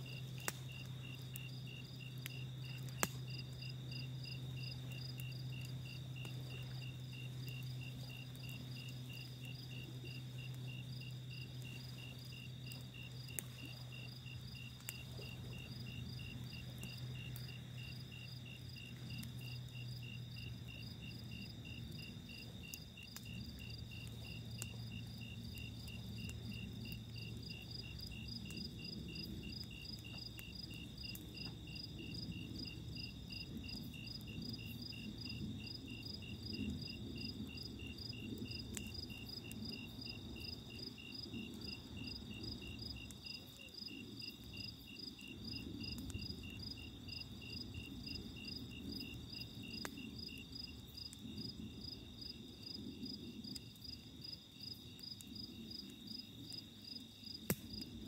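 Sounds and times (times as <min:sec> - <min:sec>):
campfire crackling: 0:00.0 - 0:58.0
continuous high insect trill: 0:00.0 - 0:58.0
night insects chirping: 0:00.0 - 0:58.0.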